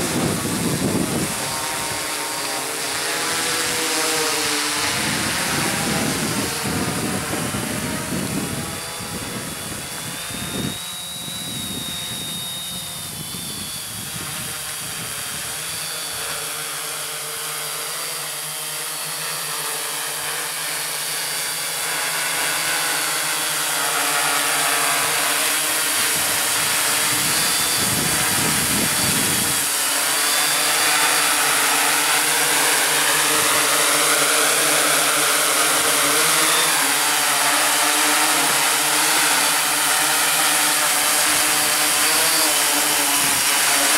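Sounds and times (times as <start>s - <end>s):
wind gusts on microphone: 0.0s - 16.4s, 25.8s - 36.9s
drone propellers whirring: 0.0s - 43.9s.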